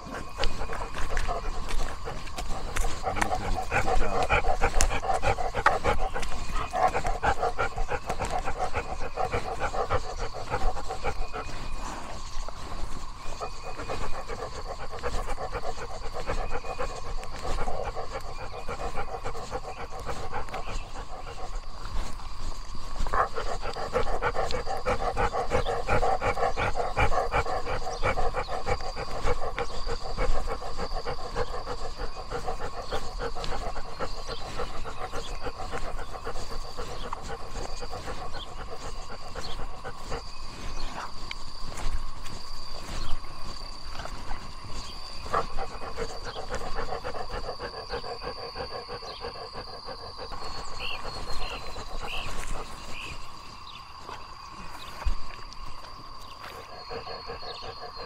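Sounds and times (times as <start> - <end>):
dog panting: 0.0 - 58.0.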